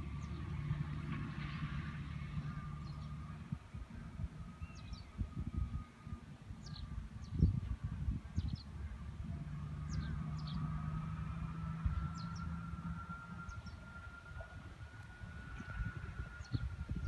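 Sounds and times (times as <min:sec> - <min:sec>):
distant tractor engine: 0:00.0 - 0:17.0
wind on microphone: 0:00.0 - 0:17.0
machinery high whine: 0:01.6 - 0:17.0
small birds chirping: 0:09.8 - 0:10.8.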